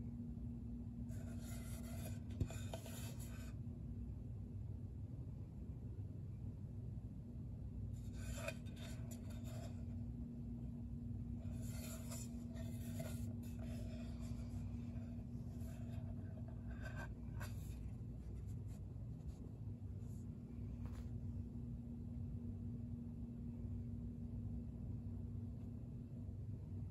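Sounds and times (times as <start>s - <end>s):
steady low hum: 0.0s - 26.9s
cutting board rubbing on fabric: 1.1s - 3.5s, 8.0s - 9.9s, 11.4s - 19.4s.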